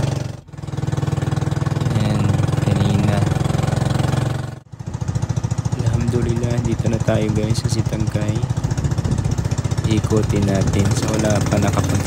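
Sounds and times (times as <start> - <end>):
boat engine droning: 0.0 - 12.0
wind noise: 8.6 - 11.0.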